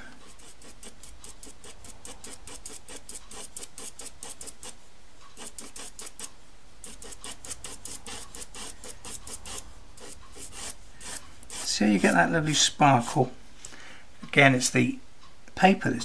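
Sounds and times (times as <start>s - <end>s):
pencil scratching on paper: 0.3s - 4.8s, 5.4s - 13.2s.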